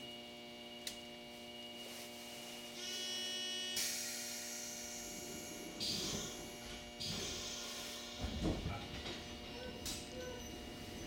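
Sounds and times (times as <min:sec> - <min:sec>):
electric train humming: 0:02.7 - 0:11.0.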